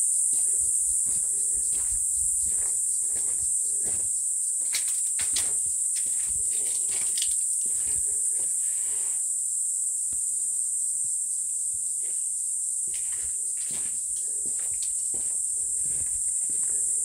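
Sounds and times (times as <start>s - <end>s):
high-pitched insect chorus: 0.0s - 17.0s
footsteps scuffing: 0.3s - 8.6s, 12.9s - 16.8s.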